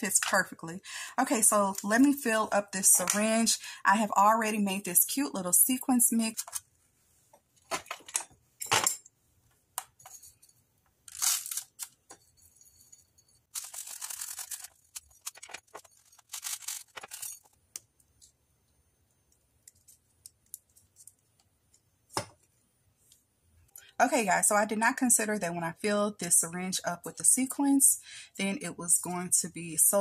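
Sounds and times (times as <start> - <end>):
paper rustling: 11.1 - 12.0, 13.5 - 17.6.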